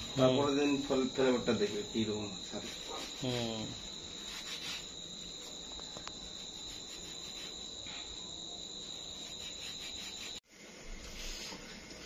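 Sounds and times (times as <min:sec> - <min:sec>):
crickets trilling: 0:00.0 - 0:10.4.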